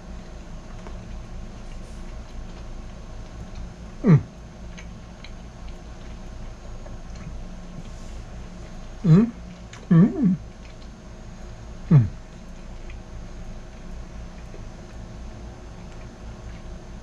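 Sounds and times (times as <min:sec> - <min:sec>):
low room hum: 0:00.0 - 0:17.0
man chewing food: 0:00.0 - 0:17.0
short falling vocal sound: 0:04.0 - 0:04.3, 0:09.9 - 0:10.4, 0:11.9 - 0:12.1.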